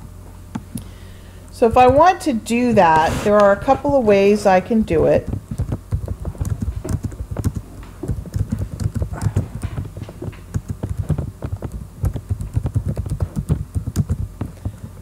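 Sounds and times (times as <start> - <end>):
typing on keyboard: 5.4 - 9.9, 10.5 - 14.3.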